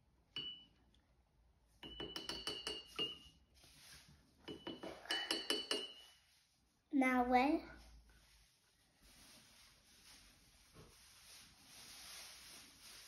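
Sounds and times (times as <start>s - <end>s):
paintbrush clinking in ceramic mug: 1.8s - 3.3s, 4.5s - 6.2s.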